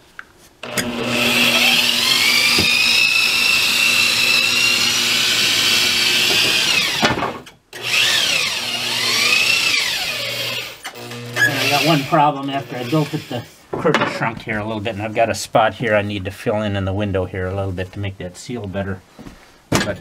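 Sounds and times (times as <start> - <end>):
electric drill motor whine: 0.6 - 7.1, 7.8 - 13.4.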